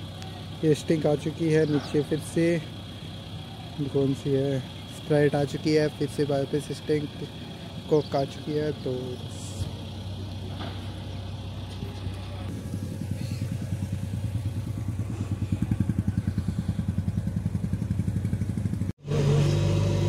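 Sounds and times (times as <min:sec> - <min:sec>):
engine idling: 0:00.0 - 0:20.0.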